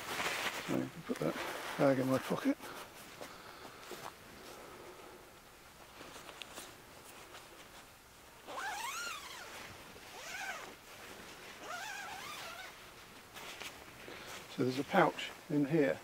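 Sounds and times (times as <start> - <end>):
zip being pulled open: 8.5 - 10.7, 11.6 - 12.8.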